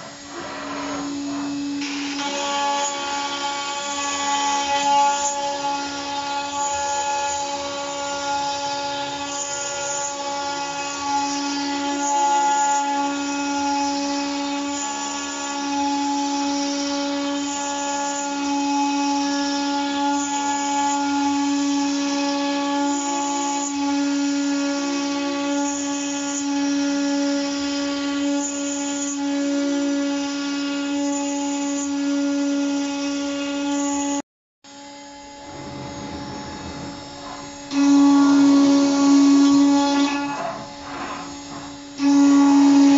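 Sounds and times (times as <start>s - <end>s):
router spindle whining: 0.0s - 42.9s
bit cutting into board: 35.3s - 42.9s.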